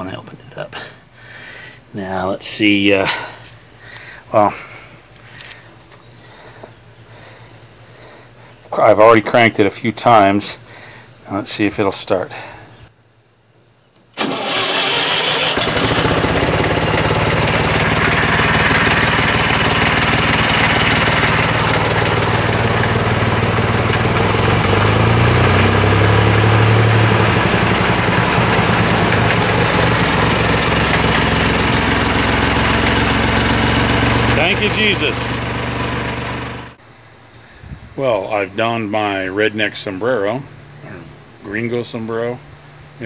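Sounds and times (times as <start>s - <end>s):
tractor engine starting and running: 14.0s - 36.8s.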